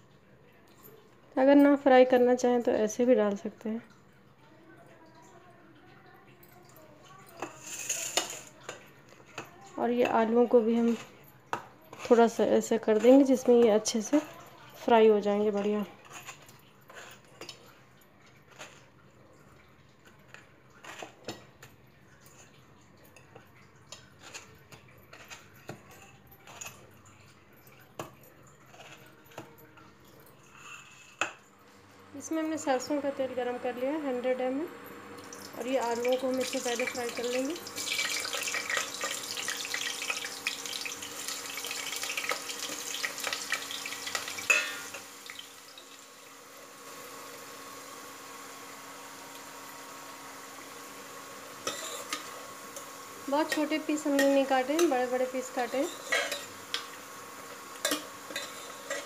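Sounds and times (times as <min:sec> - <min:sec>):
potatoes sizzling in hot oil: 0:07.5 - 0:08.5, 0:35.0 - 0:59.0.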